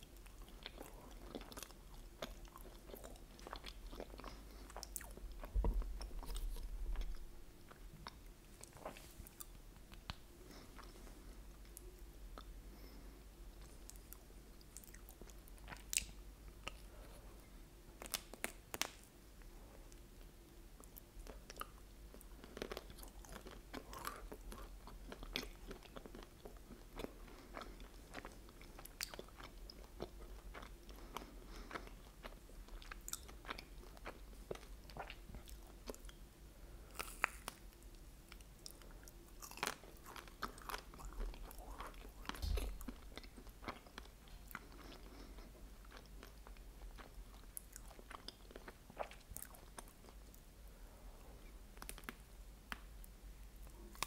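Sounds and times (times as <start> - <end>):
biting and chewing ice cream bar: 0.0 - 10.2, 20.8 - 36.2, 36.8 - 50.4.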